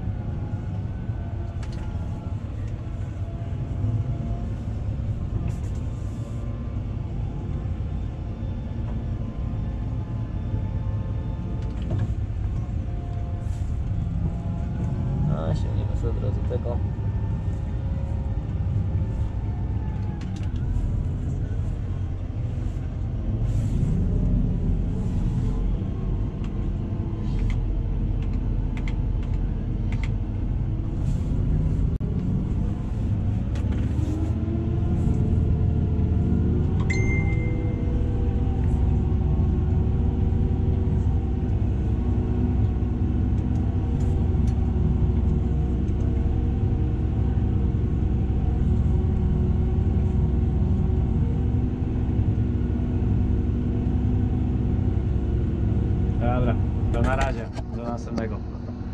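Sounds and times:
short high beep: 36.9 - 37.8.

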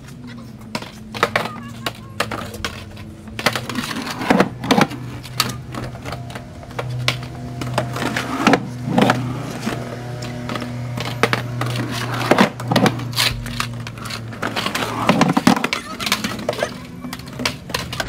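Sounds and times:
skateboard clacks and knocks: 0.0 - 18.0
skateboard wheels rolling on concrete: 0.0 - 18.0.

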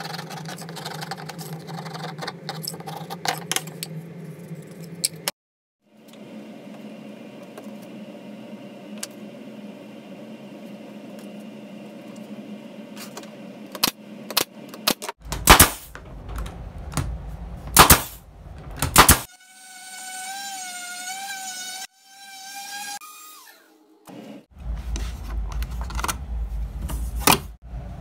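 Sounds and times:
steady low hum: 5.9 - 19.3
pneumatic stapler firing: 15.4 - 15.9, 17.7 - 18.2, 18.8 - 19.3.

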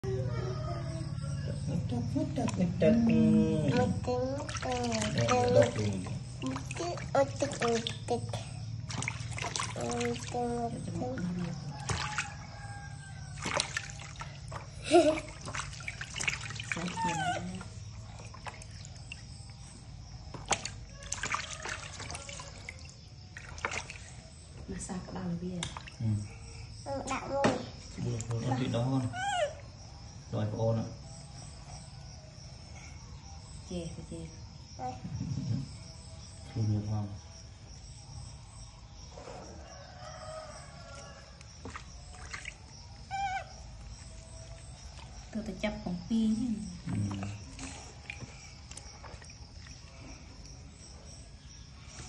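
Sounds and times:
trickling water: 1.0 - 30.4, 39.6 - 51.8
hands splashing water in tub: 2.4 - 24.2, 25.6 - 26.0, 41.2 - 45.3, 46.7 - 50.5
faint drawn-out animal call: 43.0 - 45.4.

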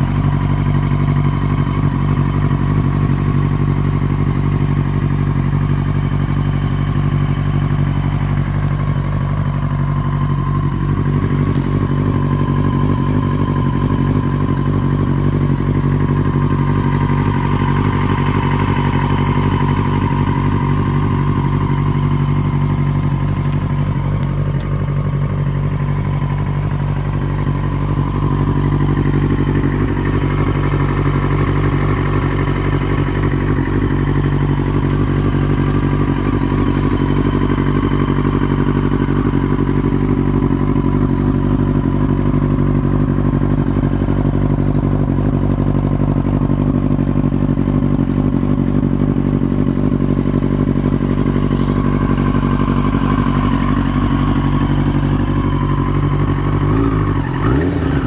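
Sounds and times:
motorcycle engine idling and revving: 0.0 - 58.0.

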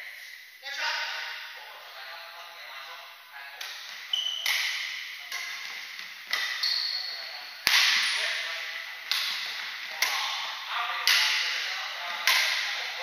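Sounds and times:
rackets hitting shuttlecock: 3.6 - 13.0
shoes squeaking on wooden floor: 3.8 - 8.6.

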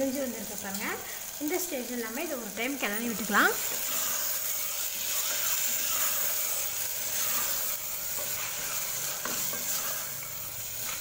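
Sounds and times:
food sizzling in a pot: 0.0 - 11.0
spatula stirring in a pot: 2.8 - 11.0.

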